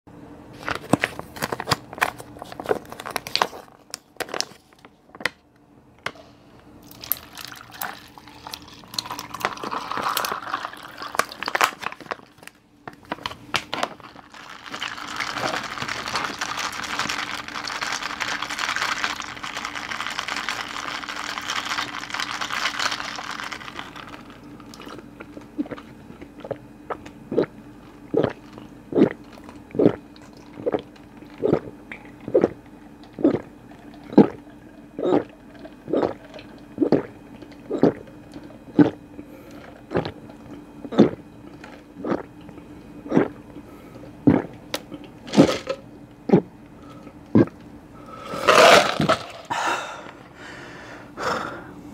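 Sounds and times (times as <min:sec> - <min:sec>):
plastic crinkling: 0:00.6 - 0:05.3, 0:08.4 - 0:25.5
coffee pouring over ice: 0:06.8 - 0:12.4, 0:14.0 - 0:25.0
gulping: 0:27.3 - 0:38.1, 0:38.7 - 0:39.0, 0:39.8 - 0:40.2, 0:40.8 - 0:41.2, 0:42.0 - 0:42.3, 0:43.0 - 0:43.4, 0:44.2 - 0:44.6, 0:47.3 - 0:47.6.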